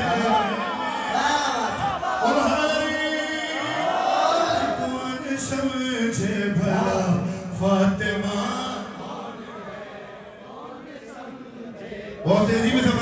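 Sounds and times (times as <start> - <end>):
man chanting into microphone: 1.2 - 9.3, 12.1 - 13.0.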